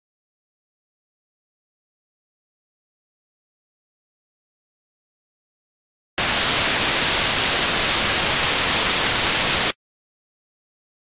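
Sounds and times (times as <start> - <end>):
static hiss burst: 6.2 - 9.8.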